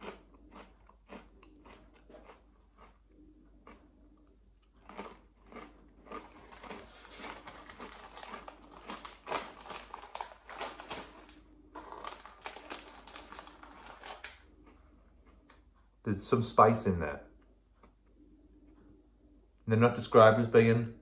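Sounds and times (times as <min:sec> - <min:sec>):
crisps being crunched and chewed: 0:00.0 - 0:15.8.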